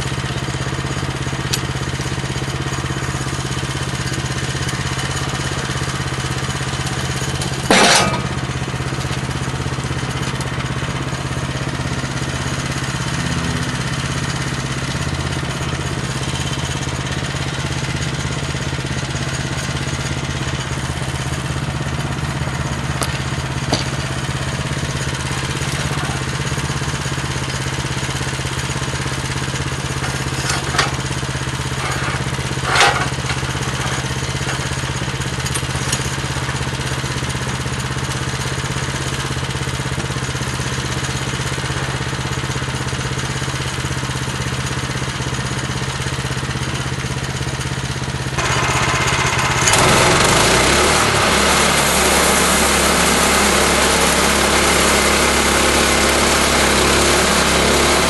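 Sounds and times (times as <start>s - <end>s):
gasoline engine running: 0.0s - 58.0s
sharp metal knocks: 7.6s - 8.5s.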